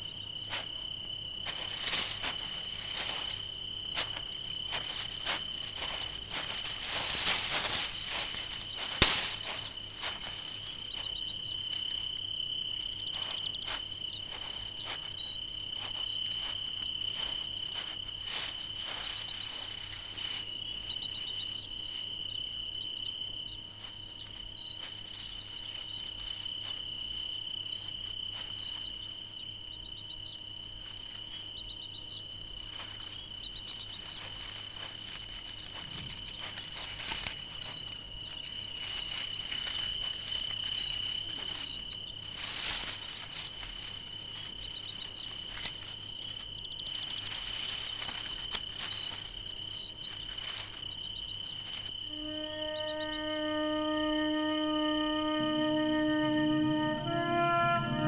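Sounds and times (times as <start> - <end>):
high-pitched insect trill: 0.0 - 58.0
short high insect chirps: 0.0 - 58.0.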